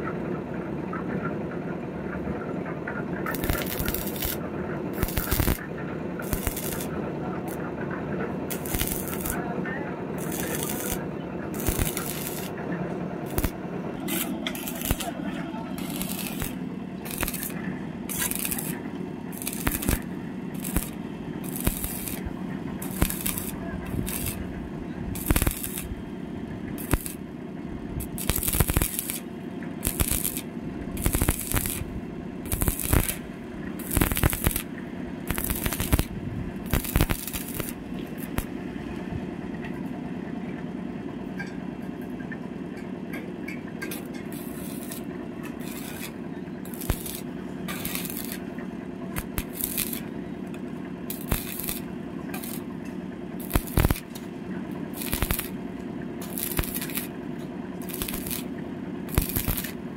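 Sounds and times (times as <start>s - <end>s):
steady low hum: 0.0s - 59.9s
welding arc crackling and sizzling: 3.2s - 7.7s, 8.4s - 9.4s, 10.2s - 12.6s, 13.2s - 27.4s, 28.0s - 38.6s, 43.8s - 52.8s, 53.4s - 54.2s, 54.9s - 55.6s, 56.2s - 57.2s, 57.8s - 59.9s.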